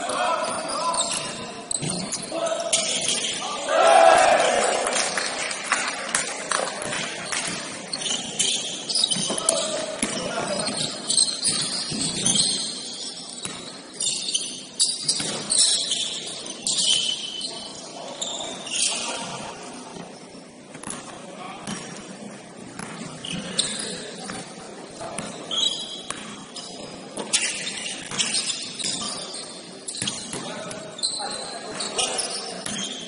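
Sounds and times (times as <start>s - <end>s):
sneakers squeaking: 0.0s - 3.6s, 6.7s - 33.0s
players' voices: 0.0s - 7.8s.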